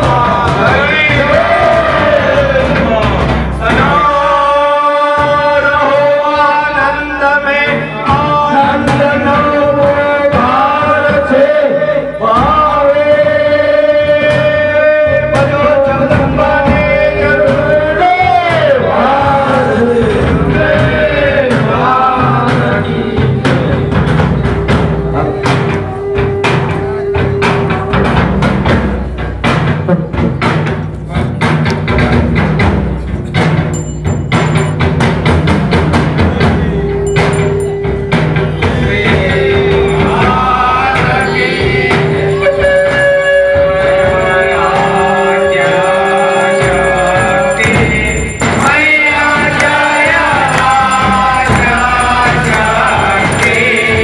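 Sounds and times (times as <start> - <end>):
devotional singing: 0.0 - 24.0, 38.6 - 54.0
sharp percussion strokes: 0.0 - 54.0.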